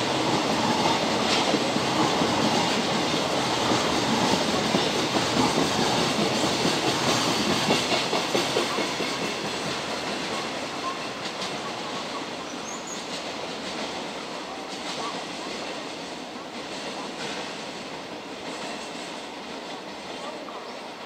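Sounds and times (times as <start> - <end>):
freight train wheels clattering on rails: 0.0 - 21.0.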